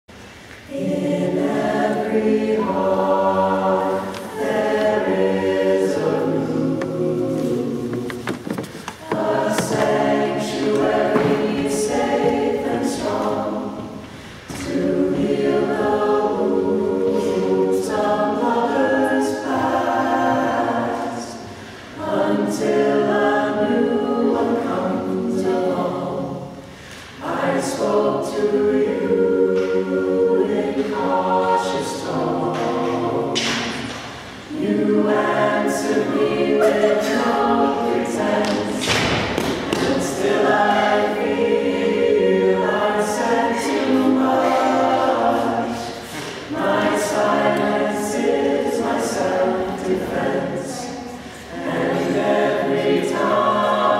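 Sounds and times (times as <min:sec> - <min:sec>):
choir singing: 0:00.6 - 0:53.9
singers breathing: 0:14.0 - 0:14.5, 0:21.4 - 0:22.0, 0:26.6 - 0:27.2, 0:45.8 - 0:46.5, 0:51.0 - 0:51.6.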